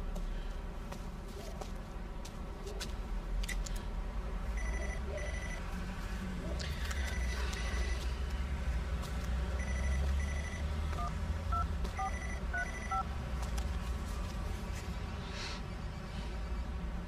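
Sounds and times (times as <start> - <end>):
phone keypad beeps: 4.6 - 5.6, 9.6 - 13.1.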